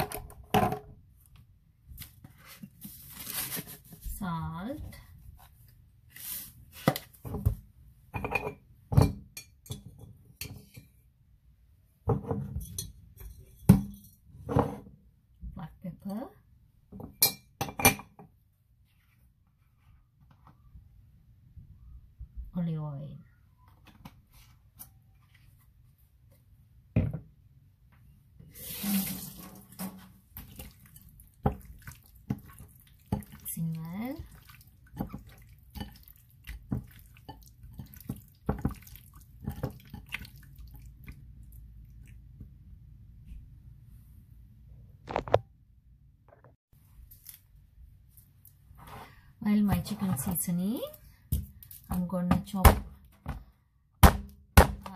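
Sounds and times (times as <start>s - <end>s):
wet squelching of raw chicken: 30.3s - 42.2s.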